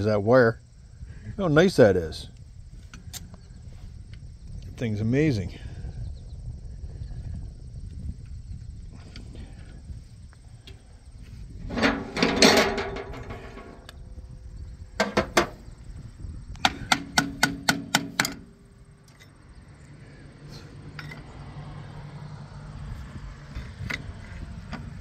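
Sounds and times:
harsh metallic ringing: 11.6s - 13.9s
hammer tapping on steel: 16.6s - 18.5s.

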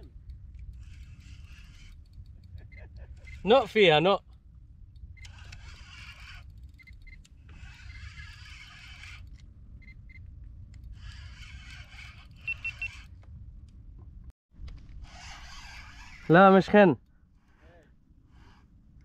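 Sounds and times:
high electronic beeps: 12.4s - 13.0s.

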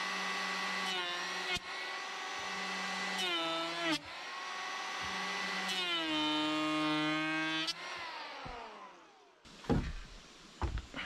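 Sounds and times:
wooden knocks and clunks: 9.6s - 11.0s.

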